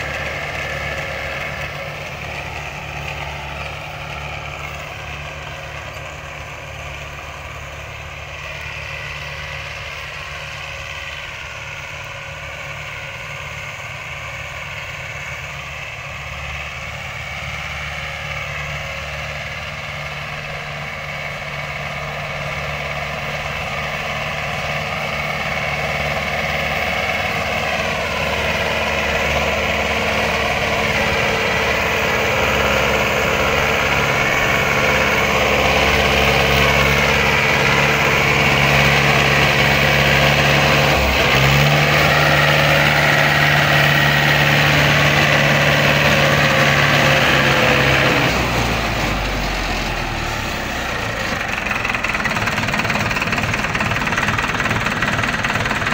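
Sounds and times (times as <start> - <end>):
tractor diesel engine under load: 0.0 - 55.9.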